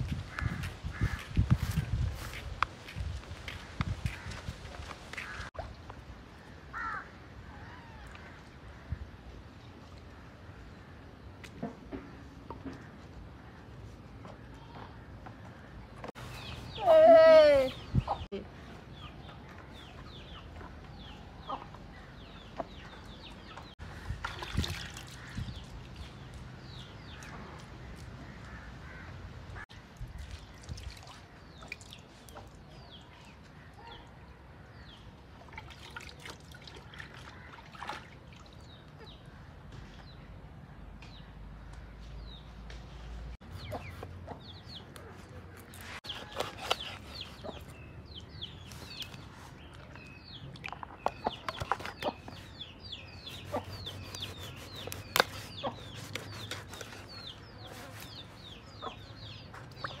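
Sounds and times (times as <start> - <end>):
birds chirping: 6.5 - 29.1, 43.4 - 60.0
knife chopping on wooden block: 53.4 - 57.1.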